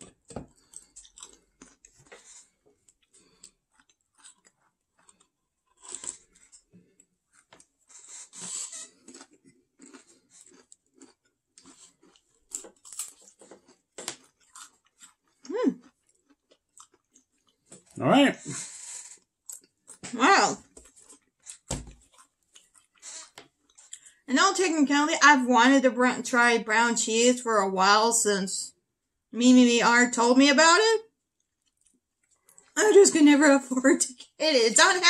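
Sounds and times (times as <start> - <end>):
crunchy snacks being chewed: 0.5 - 18.0, 19.0 - 20.0, 20.7 - 24.2, 31.4 - 32.8.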